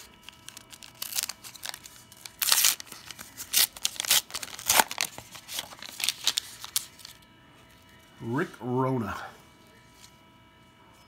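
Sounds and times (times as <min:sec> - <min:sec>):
foil wrapper tearing and crinkling: 0:00.0 - 0:07.2.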